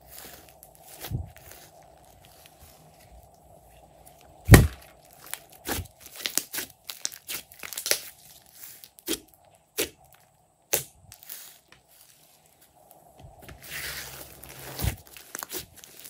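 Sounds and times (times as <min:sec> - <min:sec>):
hands squishing slime: 0:04.5 - 0:09.2, 0:13.6 - 0:16.0.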